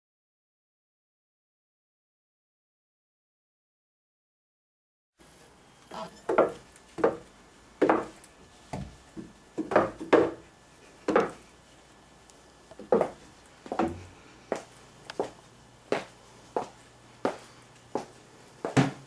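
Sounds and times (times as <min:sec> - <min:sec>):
footsteps on wooden stairs: 0:06.3 - 0:11.5, 0:12.8 - 0:19.0.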